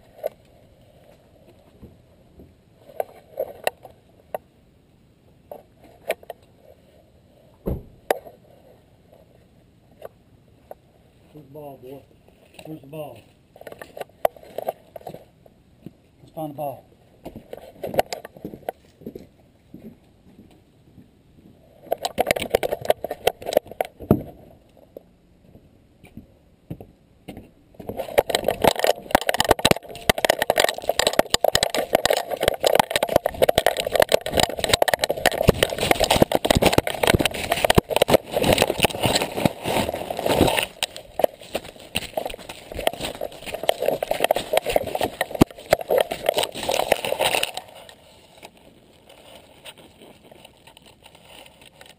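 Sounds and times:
knocking and jostling: 27.8s - 47.8s
dog running through dry leaves: 30.7s - 47.6s.

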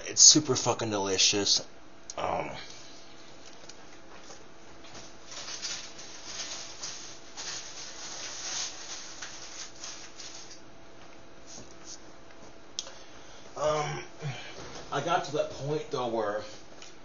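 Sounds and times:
low steady hum: 0.0s - 17.0s
rustling and scraping of handling: 3.0s - 12.6s.

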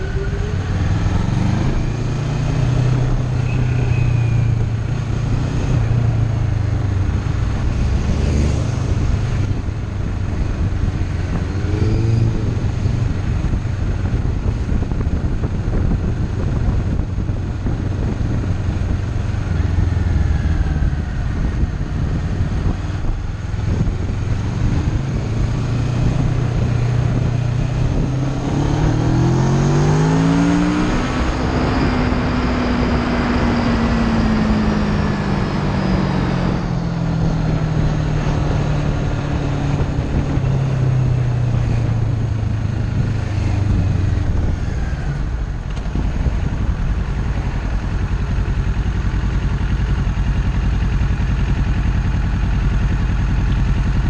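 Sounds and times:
motorcycle engine revving: 0.0s - 54.0s
wind and road noise: 0.0s - 54.0s.

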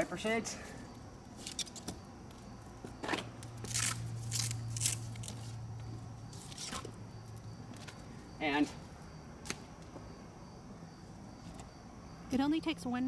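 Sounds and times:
velcro ripping open: 3.7s - 5.5s.

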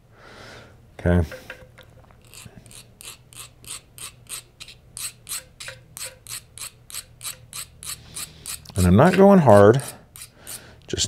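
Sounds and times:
hand file rasping on metal: 2.2s - 10.7s.

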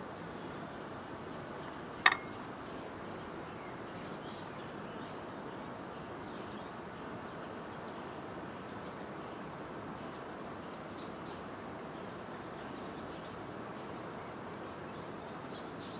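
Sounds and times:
outdoor background hiss: 0.0s - 15.9s
metal utensil clink: 2.0s - 2.3s.

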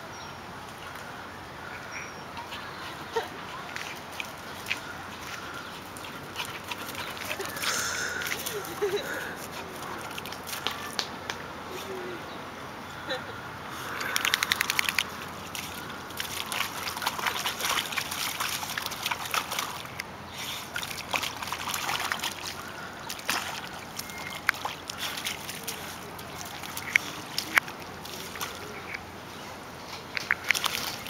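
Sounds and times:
dog splashing through puddle: 3.2s - 11.1s, 13.9s - 29.0s, 30.3s - 31.0s.

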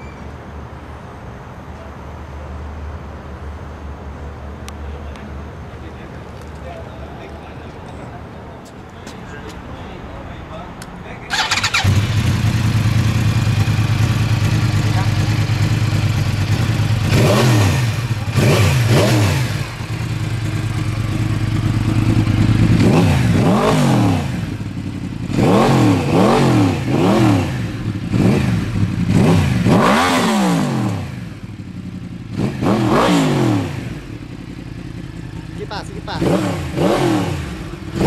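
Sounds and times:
motorcycle engine revving: 11.3s - 38.0s.

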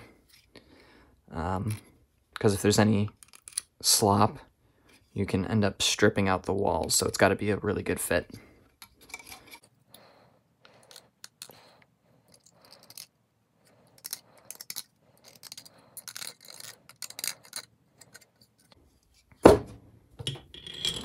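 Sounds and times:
knife scraping plastic: 13.9s - 19.4s.

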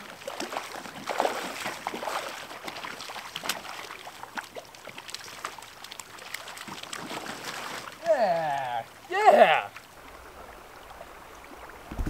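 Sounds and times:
fish splashing in water: 0.0s - 8.0s
creek water running: 0.0s - 12.0s.

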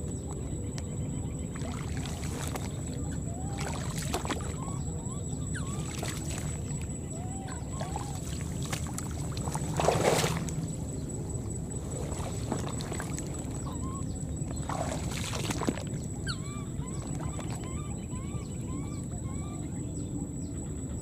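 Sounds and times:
water sloshing and splashing: 1.5s - 4.9s, 5.5s - 17.8s.

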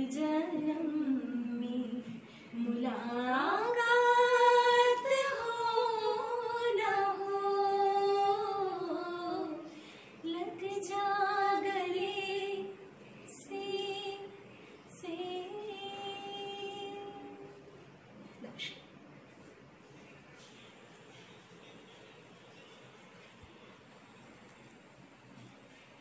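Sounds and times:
woman singing unaccompanied: 0.0s - 17.6s.

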